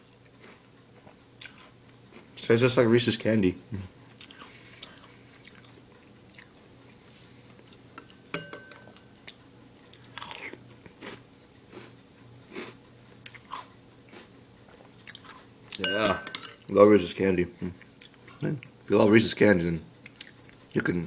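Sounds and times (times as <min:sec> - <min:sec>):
chewing and crunching cereal: 0:00.2 - 0:02.4, 0:04.1 - 0:08.3, 0:08.9 - 0:15.8, 0:20.0 - 0:20.9.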